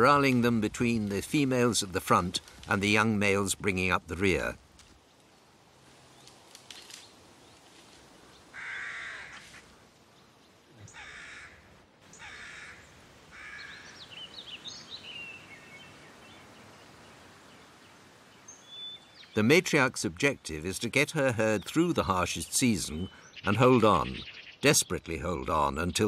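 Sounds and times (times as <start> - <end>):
songbird chirping: 0.0 - 11.4, 12.0 - 26.0
crow cawing: 8.5 - 9.6, 10.9 - 14.0.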